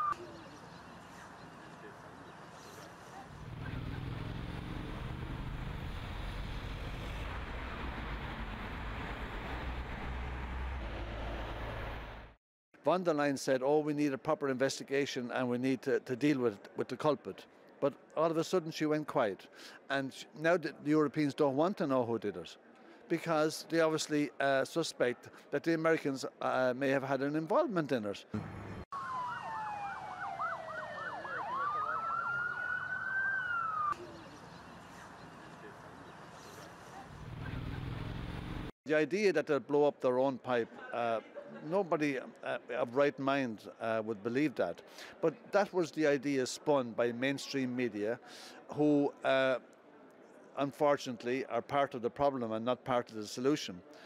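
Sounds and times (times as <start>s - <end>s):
emergency siren yelp and wail: 28.9s - 34.0s.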